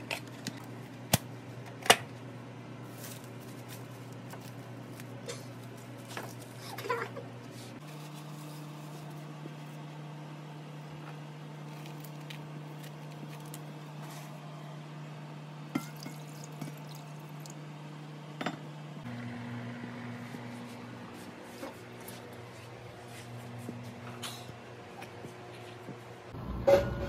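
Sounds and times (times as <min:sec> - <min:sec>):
glass containers clinking: 0:15.7 - 0:17.2
water pouring: 0:15.8 - 0:17.6.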